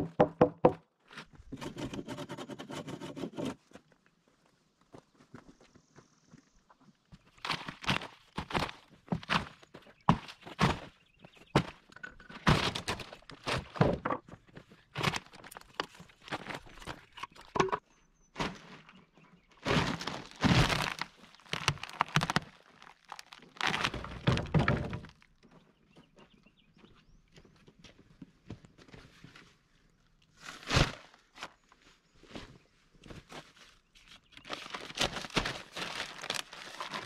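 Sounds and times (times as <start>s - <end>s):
hammer knocking wooden boards: 0.0s - 0.8s
boards scraping: 1.2s - 3.8s.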